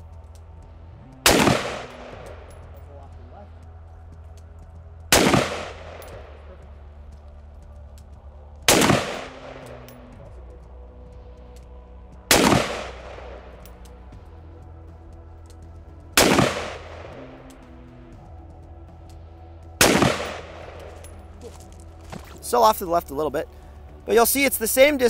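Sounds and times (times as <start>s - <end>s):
rifle shots echoing: 1.2s - 2.6s, 5.1s - 6.4s, 8.7s - 9.9s, 12.3s - 13.5s, 16.2s - 17.2s, 19.8s - 21.1s.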